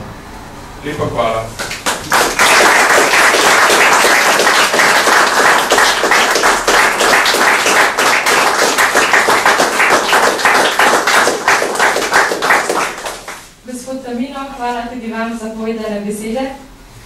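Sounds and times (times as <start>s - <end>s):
audience applauding: 1.6s - 13.5s.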